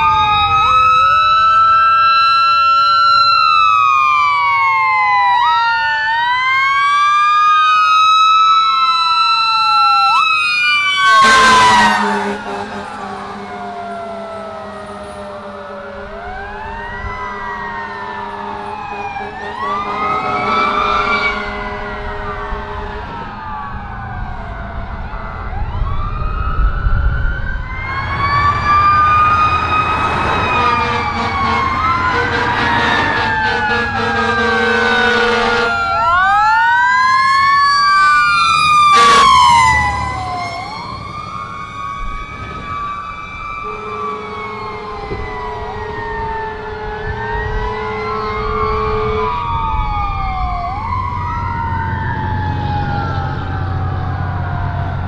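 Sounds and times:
fire truck sirens wailing: 0.0s - 55.0s
low horn tones: 11.0s - 23.6s, 27.8s - 36.0s, 38.8s - 40.8s, 43.6s - 50.3s.

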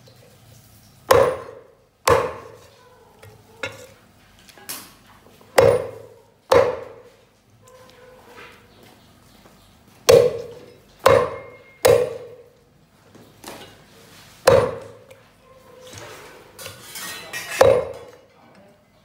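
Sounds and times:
cleaver chopping on wooden block: 1.1s - 2.6s, 5.6s - 7.1s, 10.1s - 12.5s, 14.4s - 15.1s, 17.6s - 18.1s.

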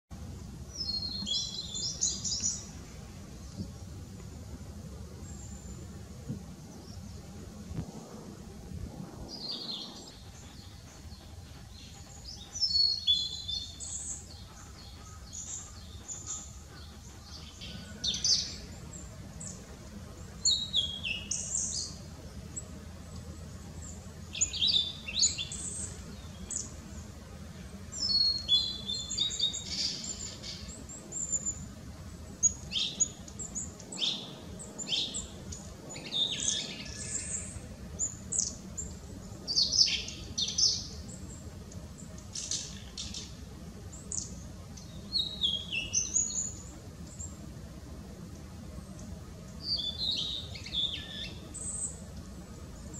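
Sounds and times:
bird singing whistled notes: 45.1s - 46.6s, 49.6s - 51.9s.

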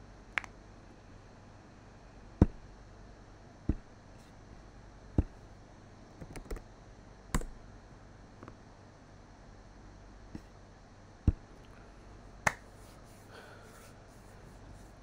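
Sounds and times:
mouse and keyboard clicks: 6.2s - 6.6s.

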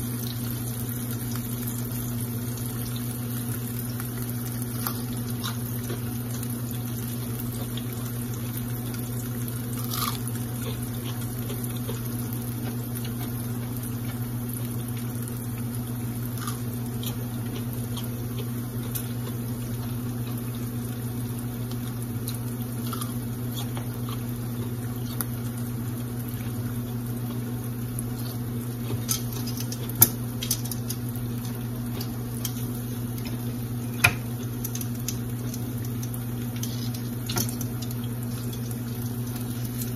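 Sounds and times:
onion rings sizzling in oil: 0.0s - 39.9s
metal tongs clicking on skillet: 29.1s - 31.0s.

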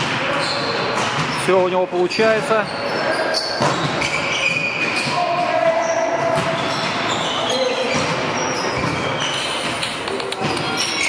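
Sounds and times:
players calling out: 0.1s - 11.0s
sneakers squeaking on court: 0.3s - 11.0s.

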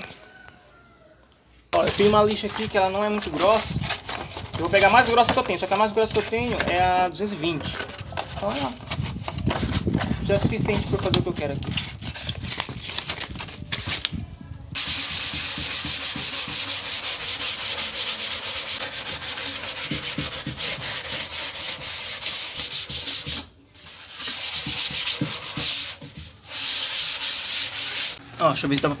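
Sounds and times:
sandpaper rasping on wood: 1.8s - 7.1s, 14.8s - 28.2s.

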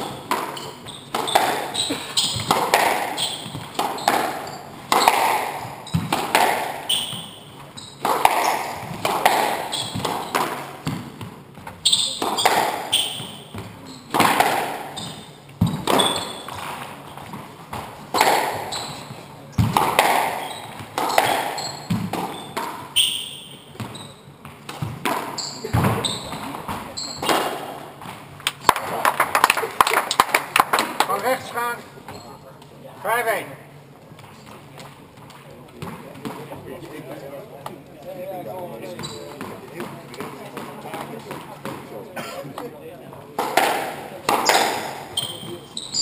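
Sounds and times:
shoes squeaking on wooden floor: 0.0s - 28.4s, 32.1s - 32.4s, 38.8s - 39.7s, 44.4s - 46.0s
squash ball cracks off walls: 0.3s - 7.4s, 8.0s - 11.3s, 19.6s - 22.8s, 43.4s - 45.5s.

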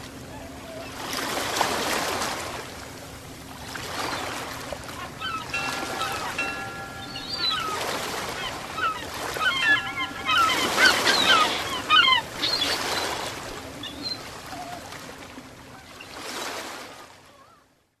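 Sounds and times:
ocean waves washing in: 1.1s - 15.7s
birds chirping: 4.1s - 14.3s.

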